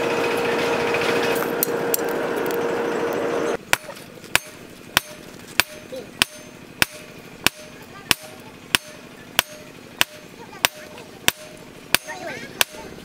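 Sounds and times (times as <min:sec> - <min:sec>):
hammer striking steel on anvil: 0:03.6 - 0:13.0.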